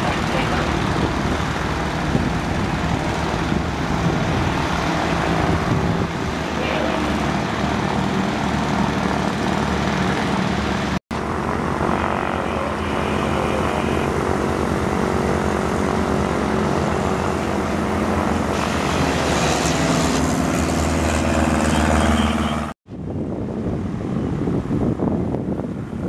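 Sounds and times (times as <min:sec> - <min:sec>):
aircraft noise: 0:00.0 - 0:22.8.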